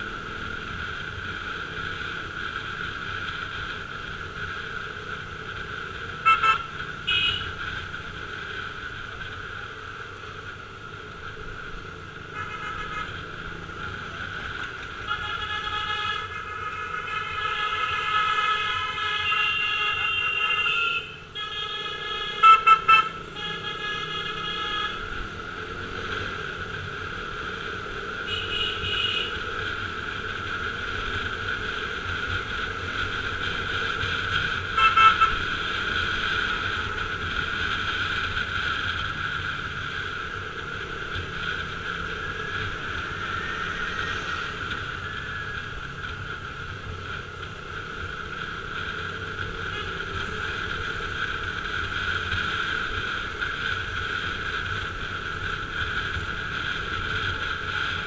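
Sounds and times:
horn toots: 0:06.2 - 0:07.5, 0:34.7 - 0:35.4.

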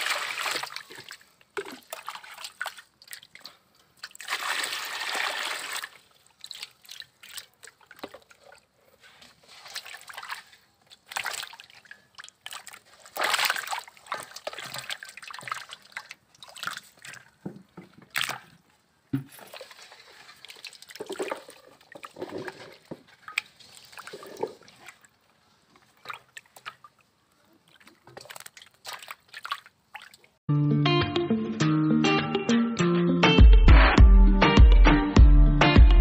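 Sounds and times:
fish splashing in water: 0:00.0 - 0:08.6, 0:09.6 - 0:17.3, 0:25.9 - 0:30.4
water pouring into metal basin: 0:04.1 - 0:06.7.

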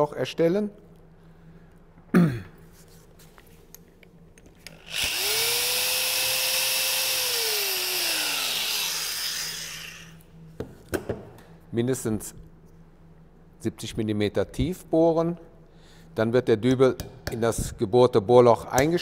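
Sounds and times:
power drill boring into block: 0:04.7 - 0:10.1.

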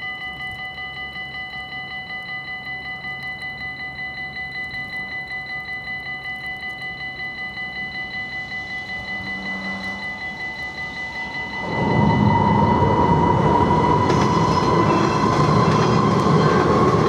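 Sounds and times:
level crossing warning bells: 0:00.0 - 0:17.0
low rumble of train: 0:07.4 - 0:17.0.

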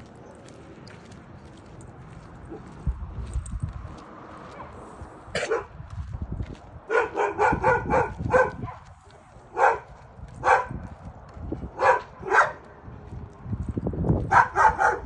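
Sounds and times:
dog barking: 0:05.4 - 0:05.7, 0:06.9 - 0:08.8, 0:09.5 - 0:10.8, 0:11.8 - 0:12.6, 0:14.3 - 0:15.0.

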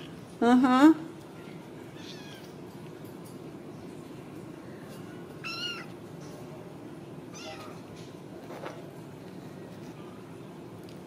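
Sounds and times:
kittens meowing: 0:05.4 - 0:06.0.

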